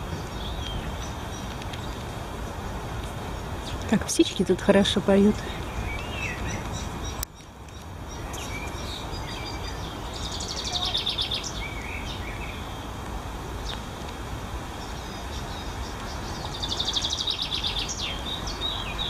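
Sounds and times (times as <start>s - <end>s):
songbirds chirping and whistling: 0.0s - 13.0s, 14.7s - 19.0s
bird trill: 8.1s - 12.9s.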